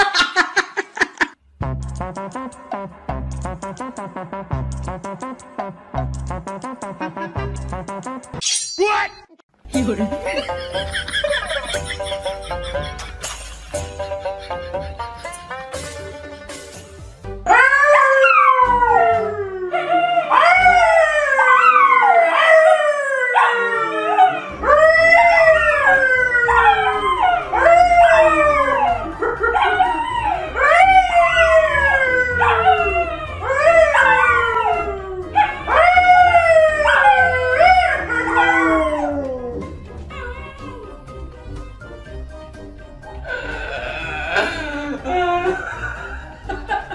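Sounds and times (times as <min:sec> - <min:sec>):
dogs howling: 0:17.5 - 0:41.1
man howling: 0:23.3 - 0:41.0, 0:43.2 - 0:46.1.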